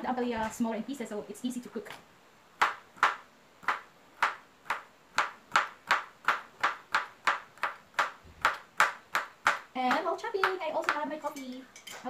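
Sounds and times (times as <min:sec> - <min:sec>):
knife chopping on plastic board: 0:02.6 - 0:11.1.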